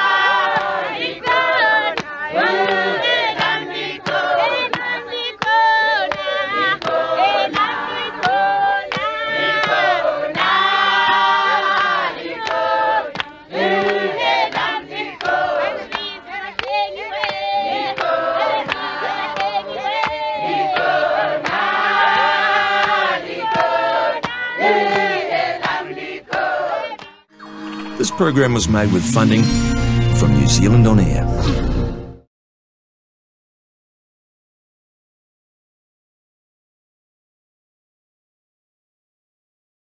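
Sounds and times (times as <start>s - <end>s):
choir singing in harmony: 0.0s - 30.4s
sharp claps: 0.4s - 0.8s, 2.0s - 2.8s, 3.4s - 27.2s.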